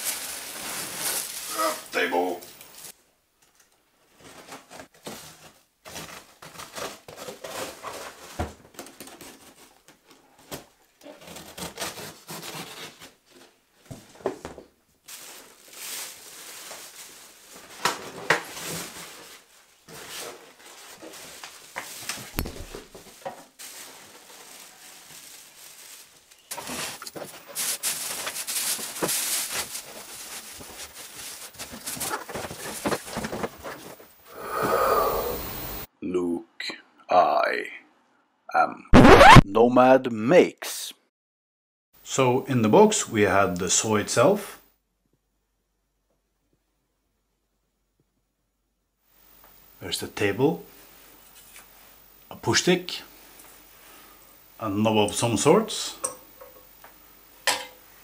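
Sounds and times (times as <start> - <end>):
plastic bags crinkling: 0.0 - 2.9, 15.0 - 34.0
foam and cardboard handled: 4.1 - 34.1.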